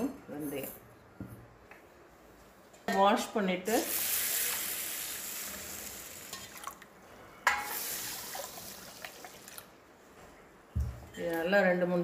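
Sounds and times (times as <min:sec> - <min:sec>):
water pouring into metal bowl: 0:03.9 - 0:06.9, 0:07.6 - 0:09.7.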